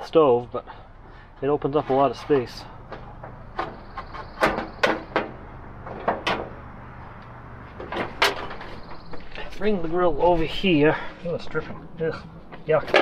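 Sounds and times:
metal camp stove clanks: 7.9s - 8.7s, 12.8s - 13.0s.

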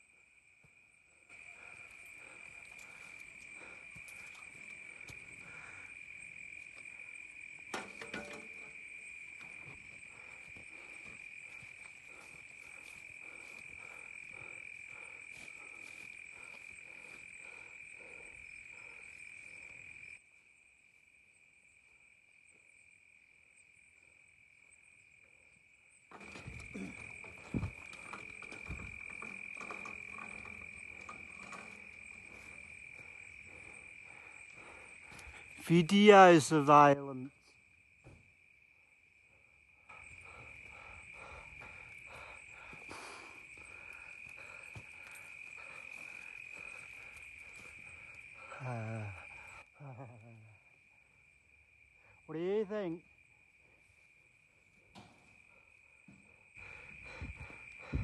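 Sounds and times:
crickets trilling: 0.0s - 58.0s
handling thumps: 26.2s - 32.7s.

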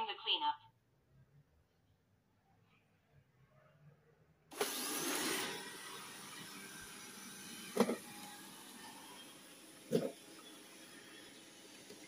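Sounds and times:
robot vacuum fan whirring: 4.5s - 12.0s.

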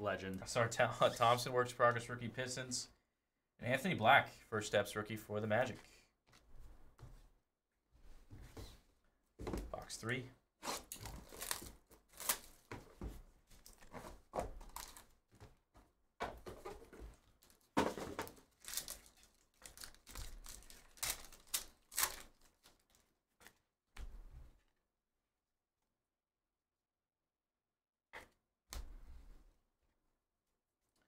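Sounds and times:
wrapper ripping and crinkling: 10.7s - 12.7s, 14.7s - 15.1s, 18.3s - 23.1s.

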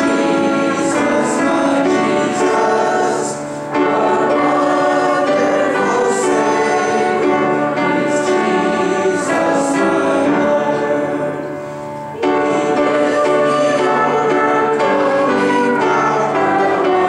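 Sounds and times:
congregation singing a hymn: 0.0s - 17.0s.

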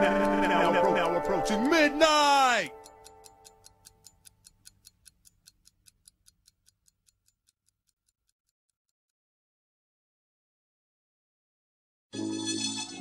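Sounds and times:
fast ticking in music: 0.0s - 8.4s.

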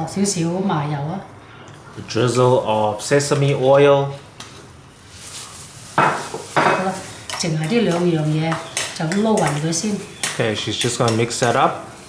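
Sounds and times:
metal spoon scraping steel bowl: 6.6s - 11.7s.

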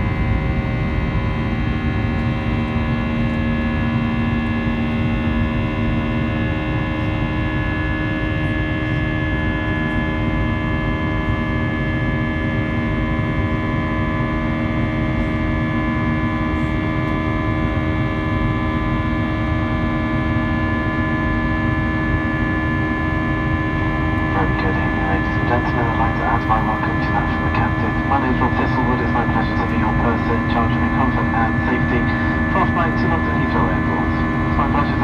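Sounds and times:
airplane cabin engine drone: 0.0s - 35.0s
low hum: 0.0s - 35.0s.

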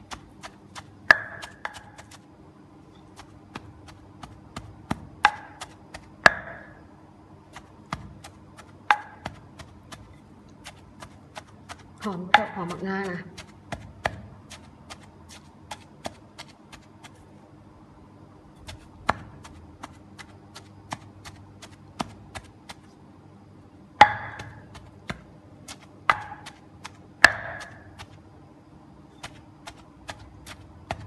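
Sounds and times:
pestle pounding in a mortar: 0.0s - 2.2s, 3.1s - 6.8s, 7.5s - 17.2s, 18.6s - 22.9s, 24.0s - 28.2s, 29.2s - 31.0s.

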